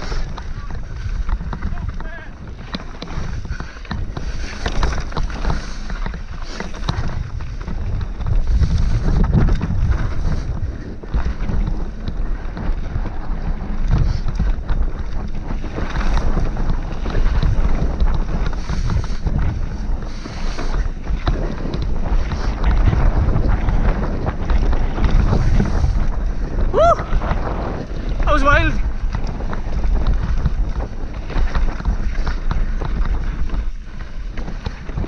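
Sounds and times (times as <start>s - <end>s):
bike rattling on stony trail: 0.0s - 35.0s
wind buffeting microphone: 0.0s - 35.0s.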